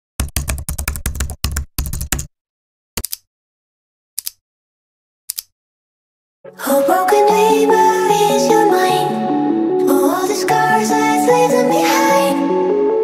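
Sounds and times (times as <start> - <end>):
keyboard typing: 0.2 - 2.3, 3.0 - 3.3, 5.3 - 5.5.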